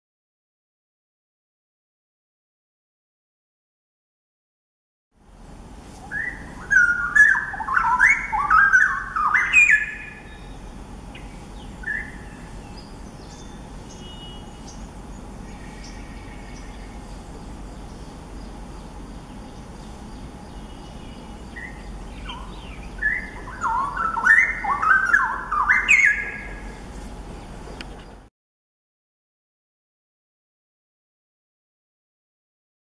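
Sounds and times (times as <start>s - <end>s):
bird singing warbled notes: 6.1s - 17.2s, 18.8s - 26.8s.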